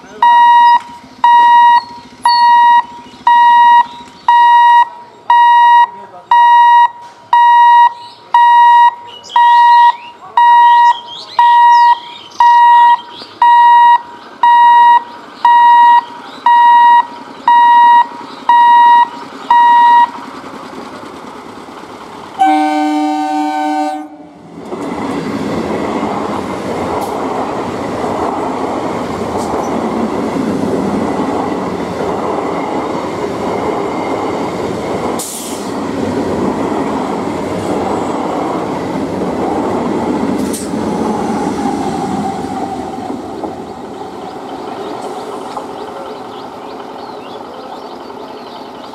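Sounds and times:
train wheels rumbling on rail: 0.0s - 48.9s
electronic warning beeps: 0.2s - 20.2s
train multi-tone horn: 22.4s - 24.4s.

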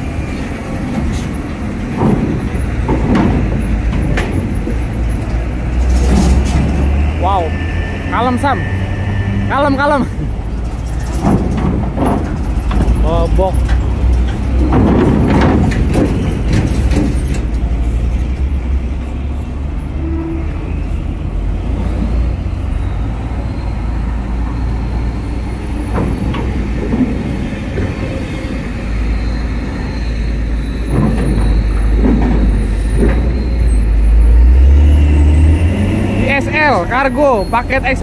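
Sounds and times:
diesel truck engine rumble: 0.0s - 38.0s
knocks: 1.9s - 4.9s, 11.1s - 13.0s, 13.6s - 17.6s, 30.8s - 33.6s.

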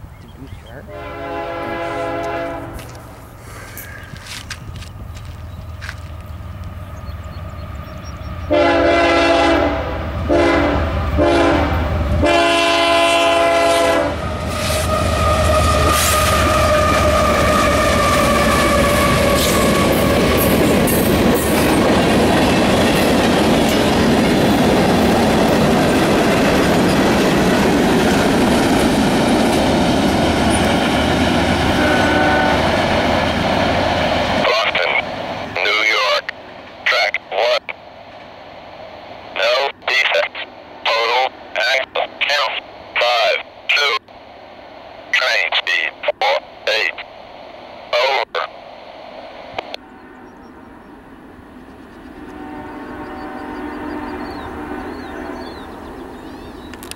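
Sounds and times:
locomotive running past: 0.0s - 36.8s
train air horn blasts: 0.9s - 3.1s, 8.5s - 20.0s, 31.7s - 32.9s, 52.3s - 55.5s.

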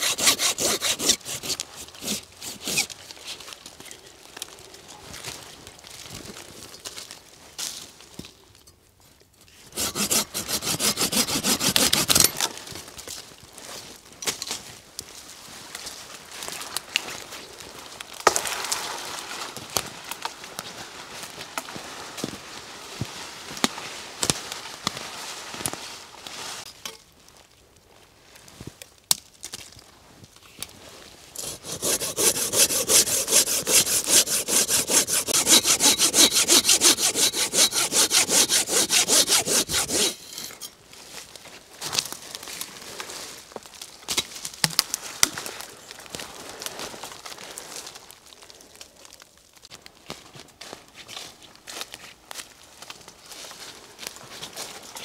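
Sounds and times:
hand saw cutting wood: 0.0s - 3.0s, 9.7s - 12.4s, 31.4s - 40.6s
rustling in dry leaves: 0.0s - 29.0s, 29.7s - 55.0s.

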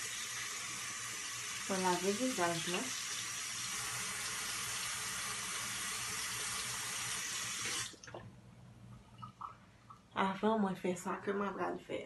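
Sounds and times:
tap water running into sink: 0.0s - 8.2s.

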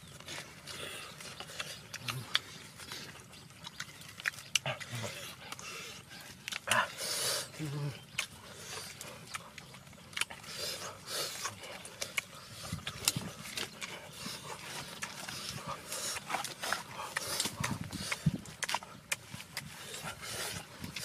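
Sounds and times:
wet chewing and smacking: 0.0s - 21.0s.

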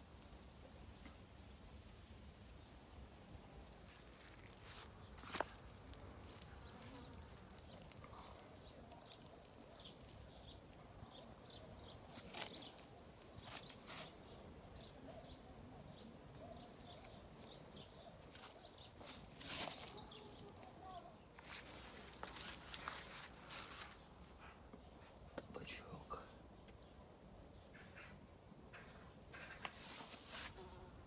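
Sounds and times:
footsteps on soil and grass: 3.7s - 8.0s, 18.3s - 20.6s, 21.4s - 24.1s, 29.7s - 30.6s.

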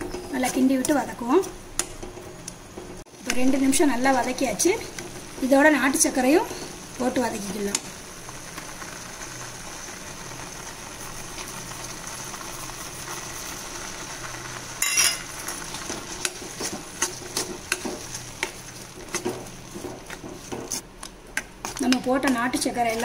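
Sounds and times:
paste sizzling in a pan: 3.2s - 23.0s
steel spoon scraping a pan: 14.8s - 20.8s.

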